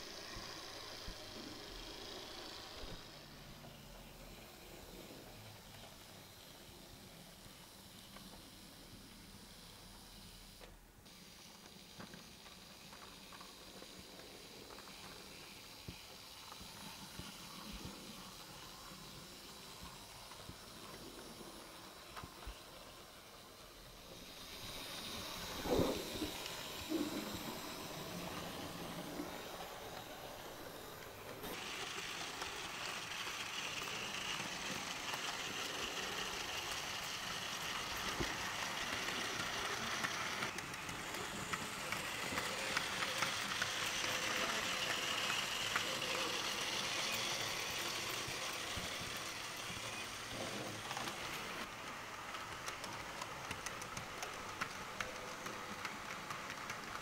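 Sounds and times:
model trains running: 0.0 - 57.0
faint clicks: 52.3 - 57.0.

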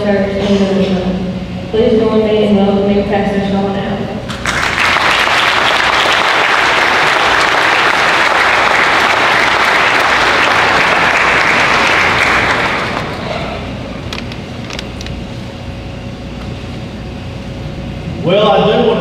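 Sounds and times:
audience applauding: 4.3 - 14.2.

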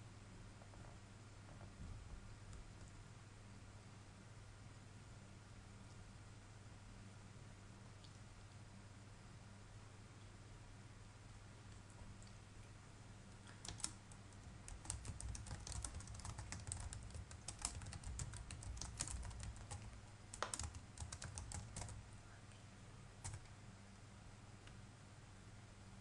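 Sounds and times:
keyboard key clicks: 13.6 - 14.0, 14.7 - 21.9.

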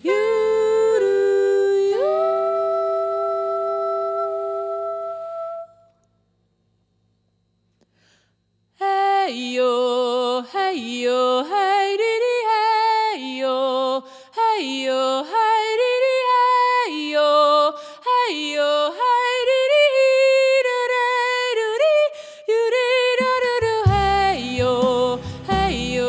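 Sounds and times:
woman singing jazz unaccompanied: 0.0 - 5.9, 8.8 - 26.0
singer breathing: 7.8 - 8.5, 14.0 - 14.4, 17.8 - 18.1, 22.1 - 22.5, 25.2 - 25.5.

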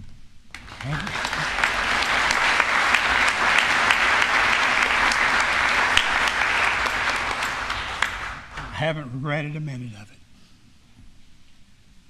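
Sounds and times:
crowd applauding: 0.5 - 9.0.

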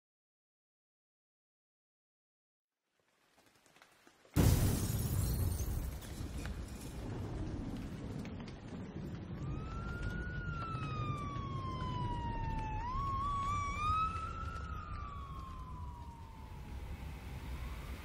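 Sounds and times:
low rumble: 6.0 - 18.0
siren wailing: 9.2 - 18.0.

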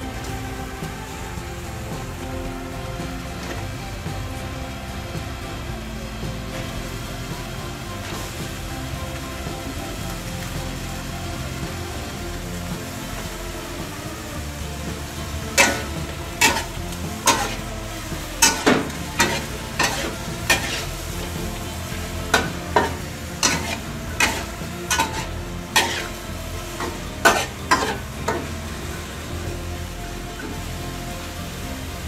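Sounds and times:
food sizzling: 0.0 - 32.0
metal spatula clanking on wok: 15.6 - 17.6, 18.4 - 21.4, 22.3 - 28.5.

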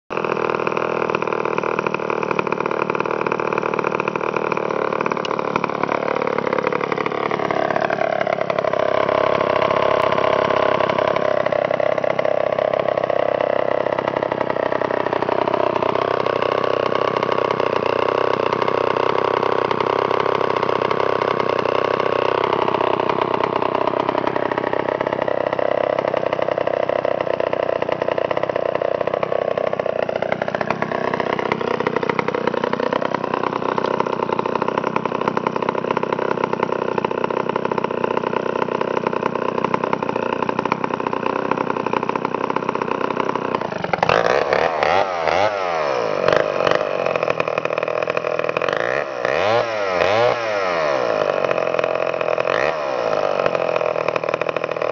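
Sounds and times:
chainsaw running: 0.1 - 54.9.

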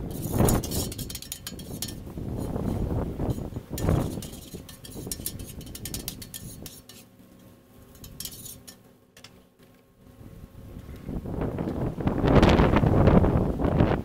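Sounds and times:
metal spatula and tongs scraping: 0.0 - 9.4.

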